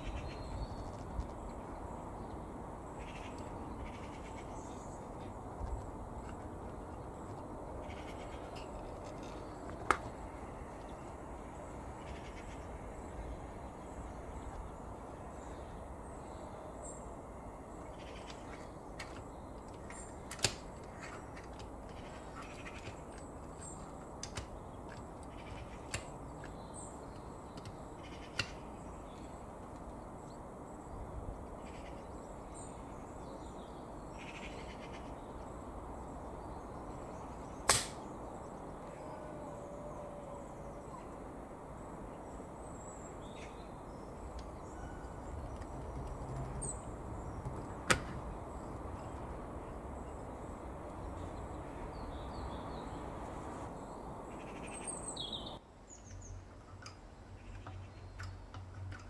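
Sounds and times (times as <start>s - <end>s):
faint bird calls: 0.0s - 1.0s, 2.9s - 5.5s, 6.2s - 14.6s, 17.8s - 20.2s, 21.0s - 24.3s, 25.0s - 29.4s, 31.6s - 32.9s, 34.1s - 35.6s.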